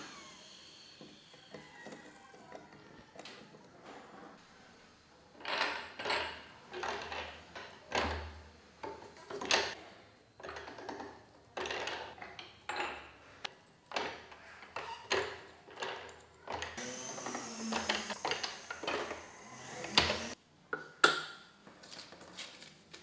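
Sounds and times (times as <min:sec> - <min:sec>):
rolling mill grinding clunks: 0:16.5 - 0:20.4.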